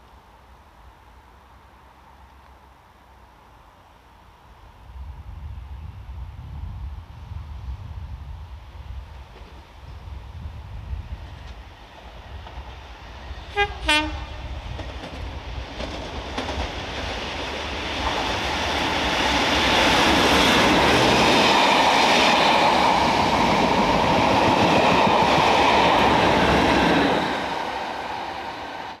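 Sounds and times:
diesel train passing: 0:00.3 - 0:29.0.

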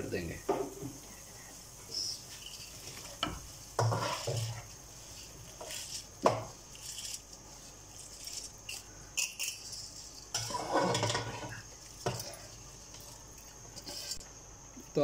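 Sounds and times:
spoon scraping a steel bowl: 0:02.3 - 0:14.2.

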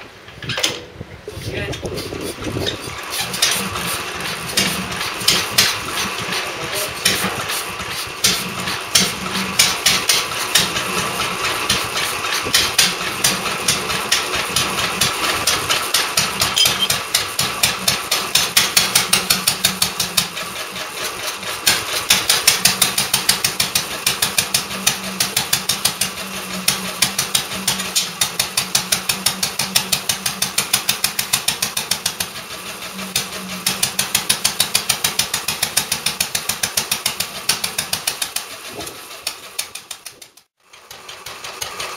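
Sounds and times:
single-cylinder engine running: 0:01.5 - 0:41.9.

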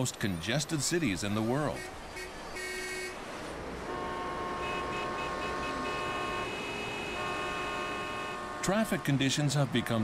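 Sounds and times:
engines and tyres noise: 0:00.0 - 0:10.0
car horns honking: 0:01.8 - 0:03.2, 0:03.8 - 0:09.6.

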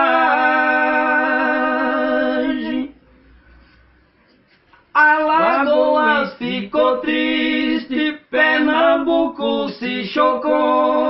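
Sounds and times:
man singing unaccompanied: 0:04.9 - 0:11.0.

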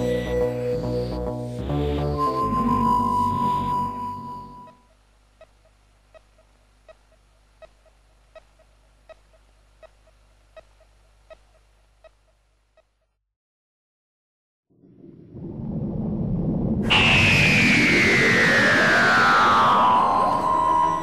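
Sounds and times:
electronic bleeps: 0:00.0 - 0:04.9, 0:16.8 - 0:21.0
low hum: 0:14.7 - 0:21.0.

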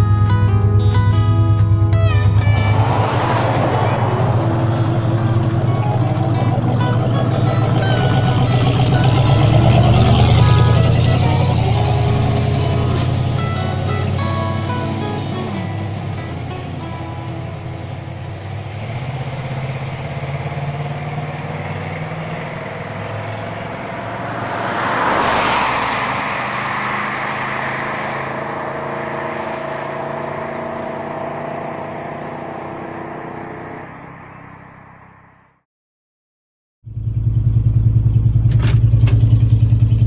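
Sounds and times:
car engine idling: 0:00.3 - 0:29.1, 0:36.9 - 0:40.0
car engine revving: 0:00.4 - 0:35.2.

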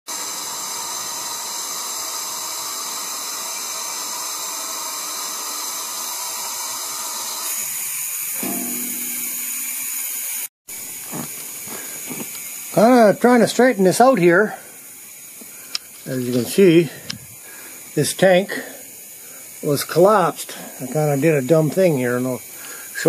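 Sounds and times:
compressed air hissing through hose: 0:00.1 - 0:23.0.

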